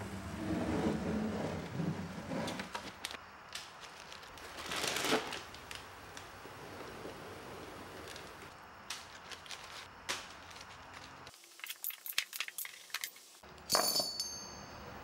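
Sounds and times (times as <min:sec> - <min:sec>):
paper liner crinkling: 0:02.7 - 0:06.3, 0:08.0 - 0:12.6
paper ripping: 0:03.9 - 0:05.8.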